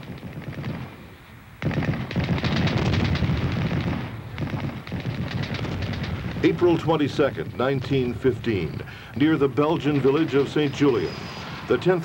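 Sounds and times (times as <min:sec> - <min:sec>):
rapid gunfire: 0:00.0 - 0:00.9, 0:01.6 - 0:08.2
heavy low rumble: 0:03.2 - 0:12.0.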